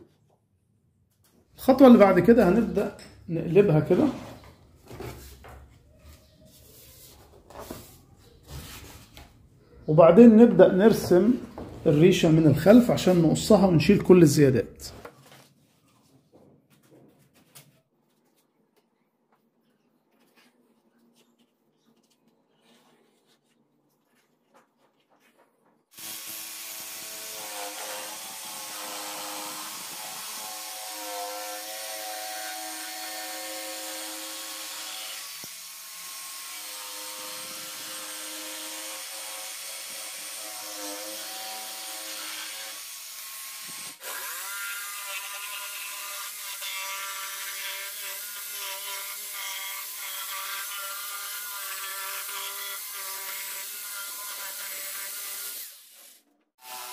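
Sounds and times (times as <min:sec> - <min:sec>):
pencil scratching: 0:06.4 - 0:09.2
electric jigsaw cutting wood: 0:25.9 - 0:56.9.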